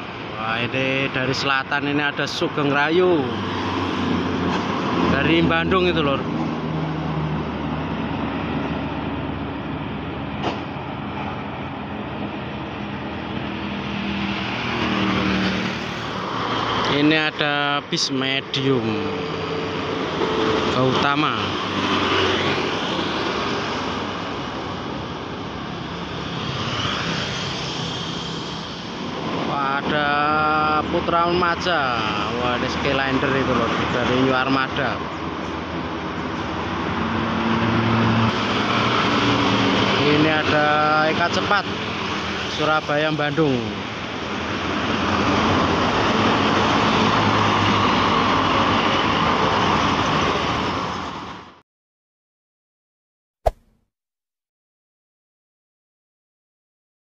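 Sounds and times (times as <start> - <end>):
motorcycles and cars approaching: 0.0 - 51.6
bus pulling away: 36.2 - 41.1.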